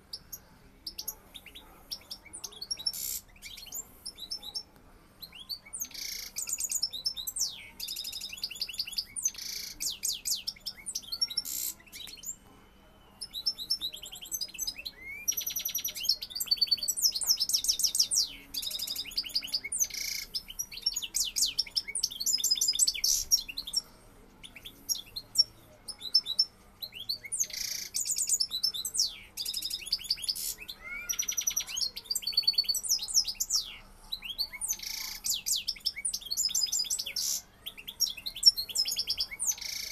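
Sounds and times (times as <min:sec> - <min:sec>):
goldfinch singing: 0:13.2 - 0:39.9.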